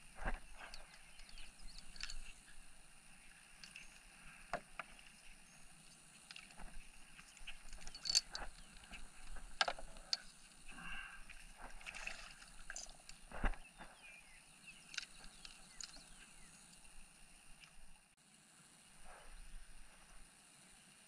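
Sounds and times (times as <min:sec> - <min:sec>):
fishing tackle clicking and knocking: 0:00.6 - 0:02.4, 0:06.2 - 0:10.4.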